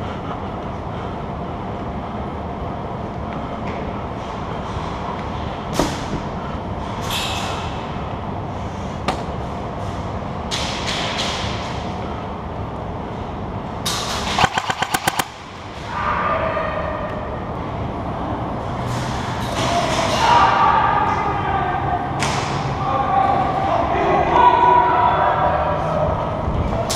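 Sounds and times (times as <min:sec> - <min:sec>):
airsoft gun rapid burst: 0:14.4 - 0:15.3
sharp clicks: 0:14.4 - 0:15.4.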